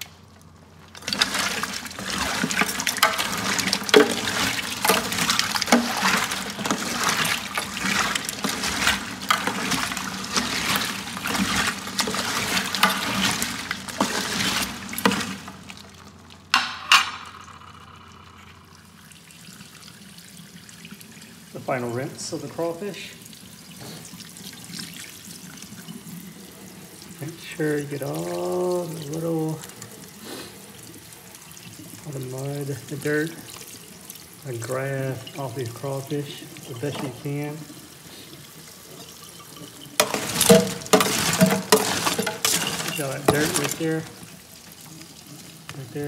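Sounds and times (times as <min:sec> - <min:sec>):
water splashing in a sink: 0:00.0 - 0:46.0
sharp knocks: 0:16.5 - 0:18.4.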